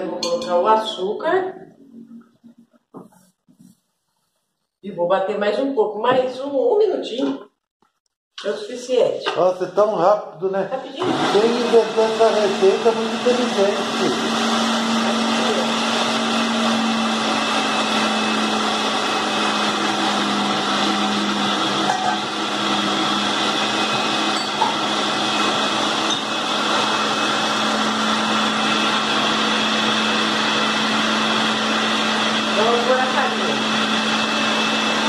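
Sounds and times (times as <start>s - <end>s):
blender motor humming: 11.0s - 35.0s.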